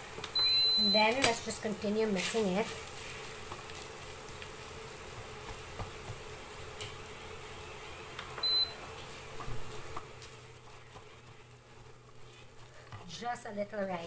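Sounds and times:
spatula stirring in a pot: 1.4 - 7.1, 8.9 - 14.0.

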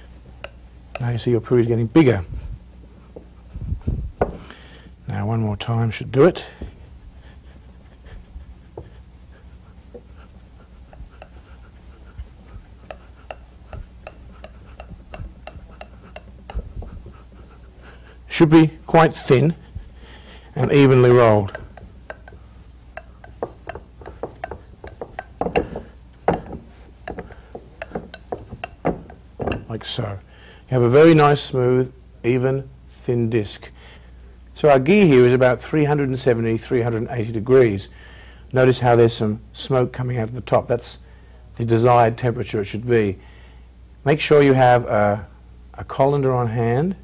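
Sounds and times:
rolling pin knocking on board: 4.2 - 4.5, 21.2 - 22.4, 23.0 - 29.8
rolling pin rubbing dough: 6.6 - 30.2
light clicks and taps: 23.0 - 29.7.

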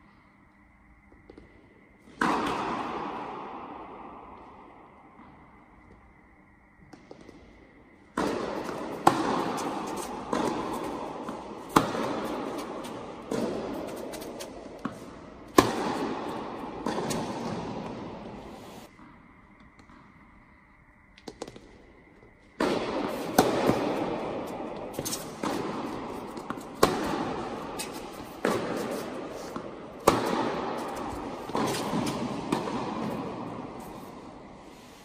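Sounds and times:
tennis balls struck by rackets: 2.1 - 5.4, 8.1 - 20.2, 22.6 - 34.7.

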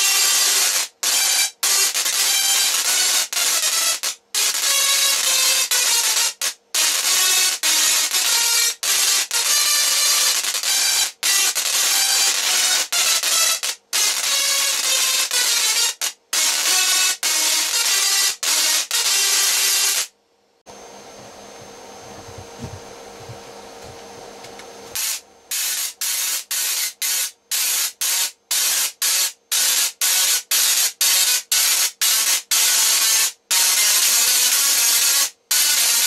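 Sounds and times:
tesla coil arcing harsh buzz: 0.0 - 20.1, 24.5 - 36.0
faint hum: 20.2 - 25.5.

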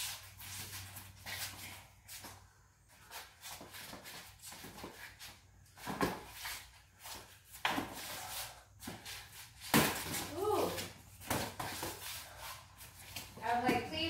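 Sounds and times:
boxing gloves smacking: 9.7 - 10.2.

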